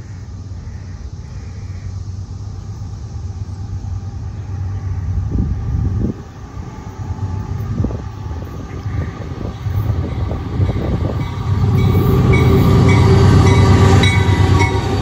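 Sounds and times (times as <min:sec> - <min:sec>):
freight train diesel rumble: 0:00.0 - 0:15.0
wind buffeting microphone: 0:04.7 - 0:15.0.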